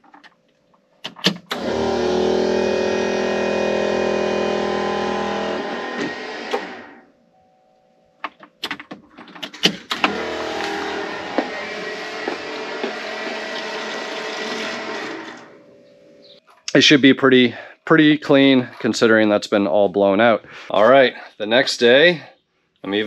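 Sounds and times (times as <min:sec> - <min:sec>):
electric fuel pump running: 0:01.2 - 0:07.1, 0:09.5 - 0:16.4.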